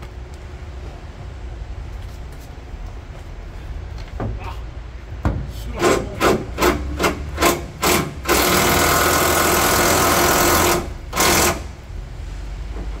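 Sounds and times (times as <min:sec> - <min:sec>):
cordless power wrench: 0:05.8 - 0:11.8.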